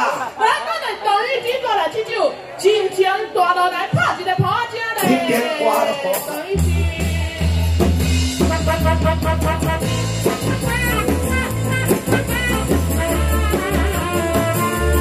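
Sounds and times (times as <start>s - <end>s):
drum kit: 5.0s - 15.0s
bass: 6.5s - 15.0s
keyboard melody: 7.9s - 15.0s
saxophone melody: 8.4s - 15.0s.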